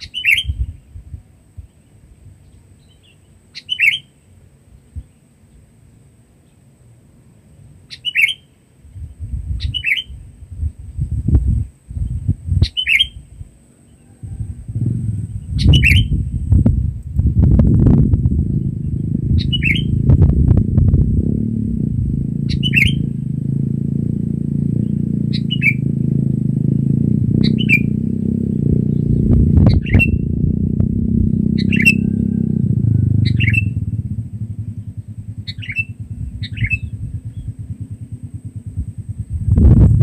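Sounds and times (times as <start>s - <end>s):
steady low rumble: 0.0s - 3.0s, 8.8s - 40.0s
bird giving sharp calls: 3.0s - 4.2s, 7.9s - 8.6s, 9.6s - 10.2s, 12.6s - 13.2s, 14.8s - 16.2s, 18.6s - 20.0s, 22.4s - 23.3s, 24.8s - 25.9s, 27.4s - 28.0s, 28.8s - 30.4s, 31.4s - 38.6s.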